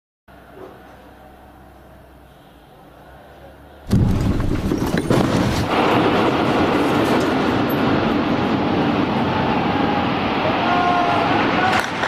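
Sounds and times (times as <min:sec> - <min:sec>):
bomb explosion roar: 0:03.9 - 0:12.0.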